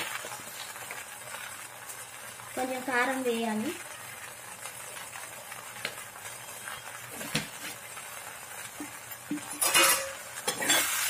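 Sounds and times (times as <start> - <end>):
meat sizzling in oil: 0.0 - 11.0.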